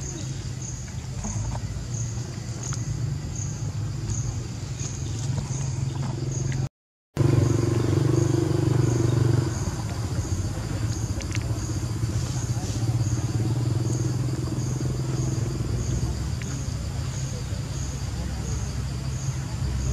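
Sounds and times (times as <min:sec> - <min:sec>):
engine running: 0:05.1 - 0:17.1.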